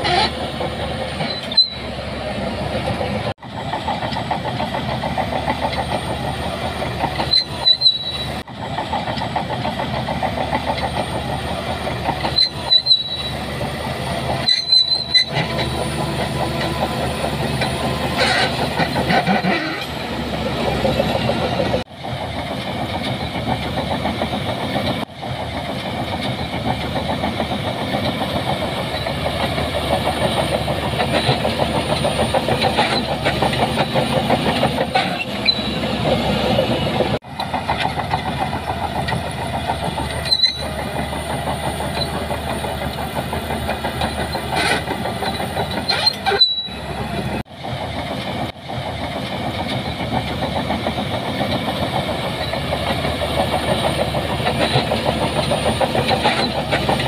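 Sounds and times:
bulldozer diesel engine: 0.0s - 57.0s
steel tracks clattering: 0.0s - 57.0s
high squeals: 1.2s - 2.2s, 7.0s - 8.4s, 12.1s - 13.7s, 14.3s - 20.0s, 34.9s - 36.3s, 40.1s - 42.2s, 44.2s - 47.1s.

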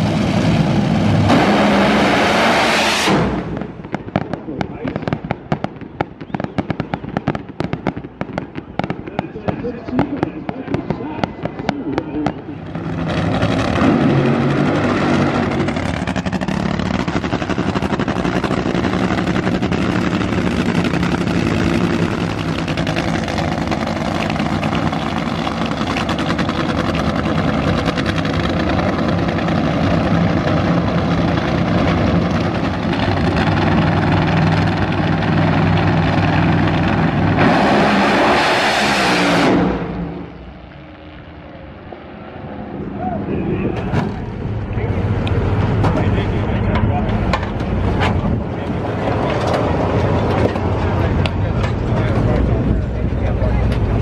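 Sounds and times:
race car full throttle blast: 0.0s - 3.9s, 11.0s - 41.2s
loud race car engines running: 0.0s - 54.0s.

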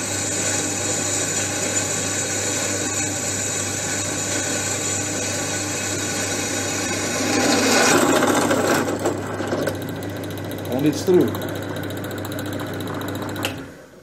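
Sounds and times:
drill bit cutting steel: 0.0s - 9.0s
drill motor hum: 0.0s - 13.8s.

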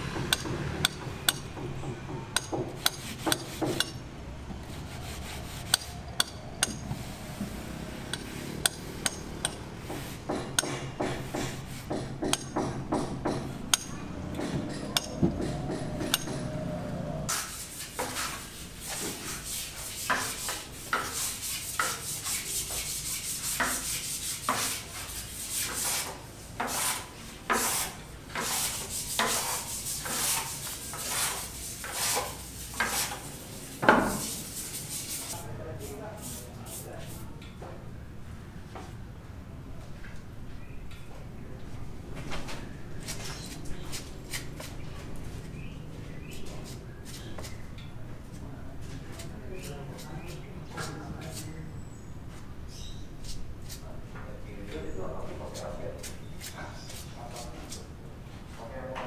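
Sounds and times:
hand float scraping on render: 2.7s - 4.0s, 4.6s - 12.4s, 17.3s - 37.3s.

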